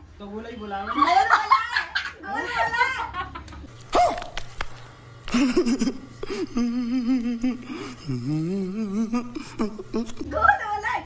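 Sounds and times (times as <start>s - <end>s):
person making short vocal sounds: 5.3s - 10.3s
person moaning: 5.4s - 10.3s.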